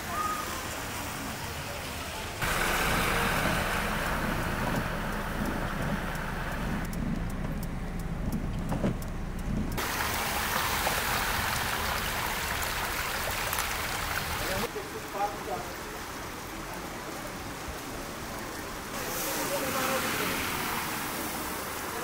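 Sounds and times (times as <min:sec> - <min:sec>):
tyres hissing through water: 0:00.0 - 0:06.9, 0:09.8 - 0:16.0, 0:18.4 - 0:22.0
car engines running: 0:02.2 - 0:14.7.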